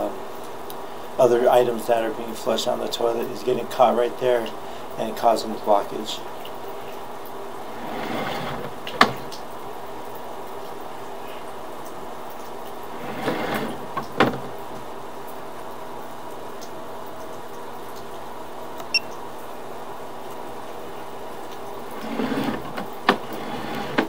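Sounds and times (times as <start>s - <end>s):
steady hum: 3.8s - 24.0s
cable rustling scrape: 7.7s - 9.2s, 12.9s - 14.4s, 22.0s - 24.0s.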